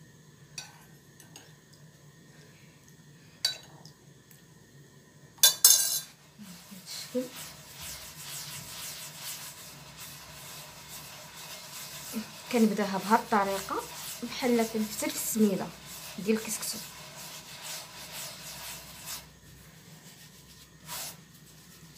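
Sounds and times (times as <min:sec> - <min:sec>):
metal spoon clinking on platter: 0:05.4 - 0:06.1
hands rubbing flour: 0:06.3 - 0:21.9.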